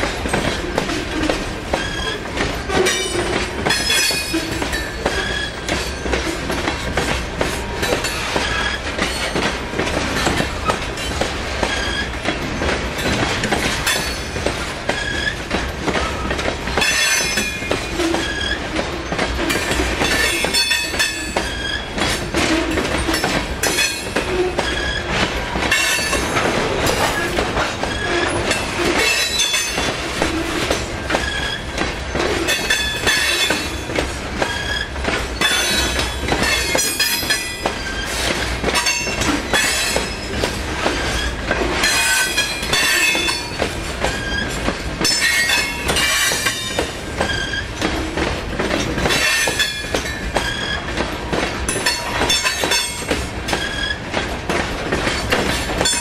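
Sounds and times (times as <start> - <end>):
train wheels clattering on rails: 0.0 - 56.0
high wheel squeals: 1.7 - 6.1, 16.0 - 19.2, 20.1 - 22.0, 34.4 - 38.3, 42.0 - 44.6, 47.2 - 47.8.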